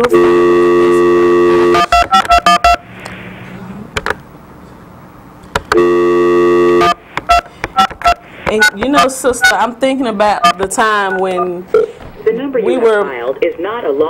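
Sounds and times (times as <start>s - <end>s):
touch-tone keypad beeps: 1.6s - 2.8s, 5.8s - 9.6s, 10.4s - 11.9s
telephone dial tone: 5.7s - 9.5s.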